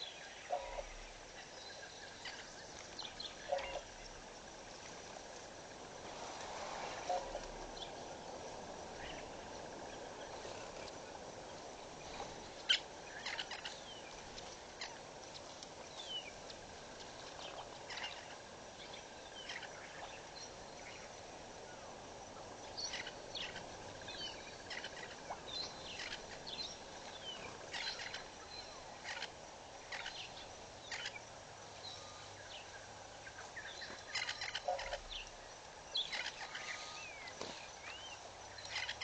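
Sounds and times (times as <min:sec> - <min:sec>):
bird calls and chirps: 0:00.0 - 0:04.1, 0:11.9 - 0:21.1, 0:22.4 - 0:31.2, 0:31.8 - 0:39.0
faint outdoor hiss: 0:00.0 - 0:39.0.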